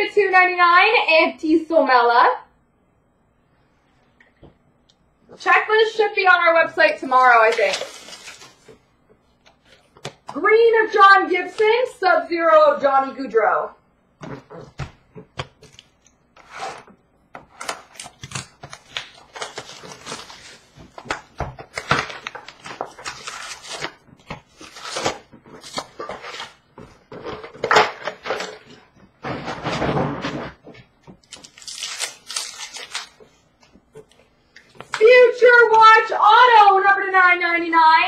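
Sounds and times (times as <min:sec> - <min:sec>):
wrappers crinkling: 0:07.1 - 0:08.8, 0:17.8 - 0:27.5, 0:31.2 - 0:33.4
card packs torn open: 0:07.4 - 0:08.8, 0:17.6 - 0:26.6, 0:31.2 - 0:33.3.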